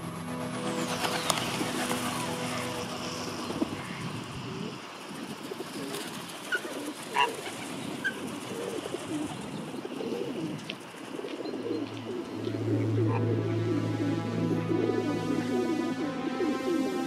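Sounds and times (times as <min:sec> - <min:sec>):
pigeons cooing: 0:00.7 - 0:17.0
small birds chirping: 0:01.0 - 0:13.3.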